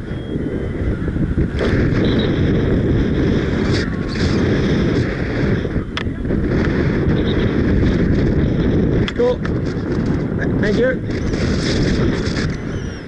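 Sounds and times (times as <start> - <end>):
gusty wind buffeting microphone: 0.0 - 13.0.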